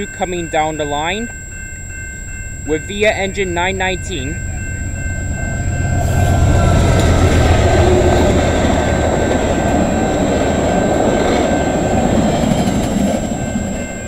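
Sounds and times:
diesel locomotive engine rumbling: 0.0 - 14.0
train wheels clattering on rails: 4.5 - 14.0.

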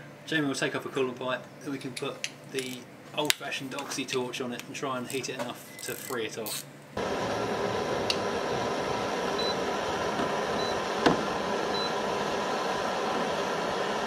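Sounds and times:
torch hissing: 7.0 - 14.0
thermometer high beeps: 9.4 - 9.6, 10.6 - 10.8, 11.7 - 12.0.

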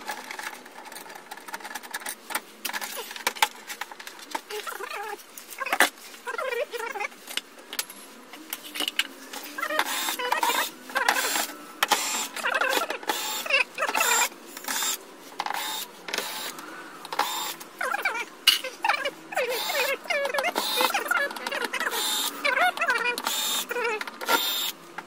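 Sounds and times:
small electric motor whirring: 8.4 - 18.2, 19.0 - 24.8.

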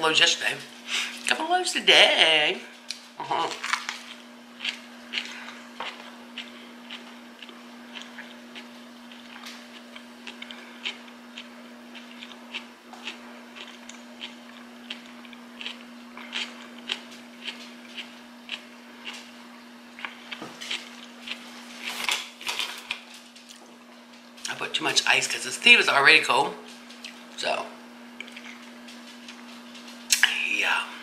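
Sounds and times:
steady low hum: 0.0 - 31.0
chewing mouth clicks and smacks: 3.8 - 19.3.

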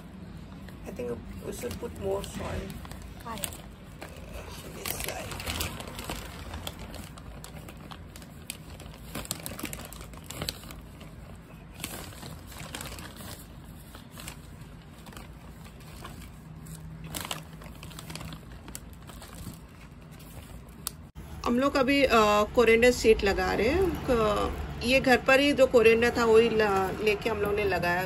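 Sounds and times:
plastic bag crinkling: 1.4 - 21.1.

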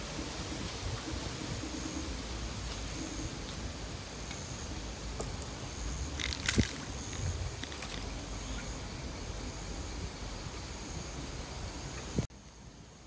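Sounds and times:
wind rumble on microphone: 0.0 - 3.8, 5.2 - 8.3.

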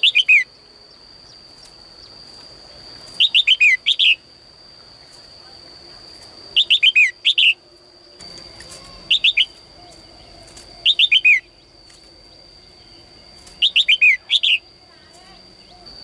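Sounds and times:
steady high-pitched whine: 0.0 - 16.0
bird singing chirpy notes: 3.1 - 4.3, 6.6 - 14.8.

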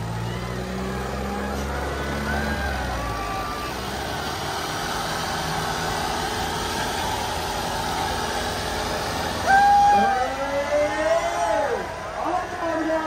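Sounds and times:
tractor engines running under load: 0.0 - 13.0
person shouting: 9.4 - 10.2.

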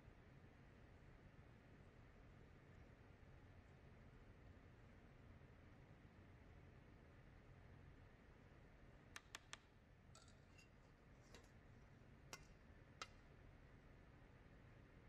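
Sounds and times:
faint sharp clicks and taps: 9.1 - 11.6, 12.3 - 13.3.

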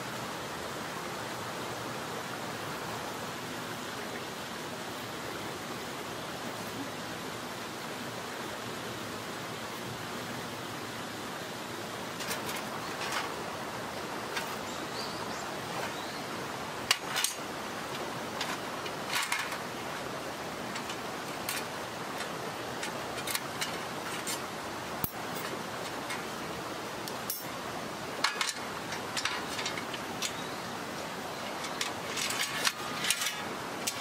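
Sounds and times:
mountain stream rushing: 0.0 - 34.0
sheet metal panels clinking: 28.2 - 30.4, 31.4 - 34.0.

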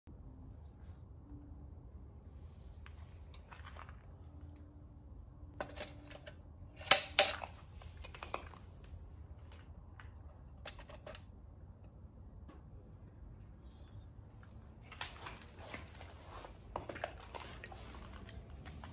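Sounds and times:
metal lantern clicking and clinking: 5.6 - 8.6.

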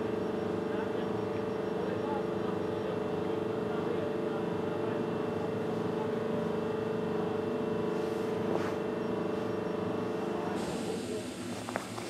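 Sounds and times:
locomotive machinery hum: 0.0 - 12.0.

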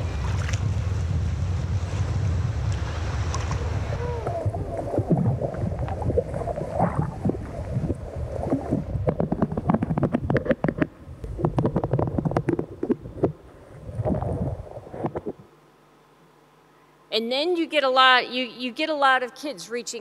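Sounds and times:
underwater churning water: 0.0 - 15.5.

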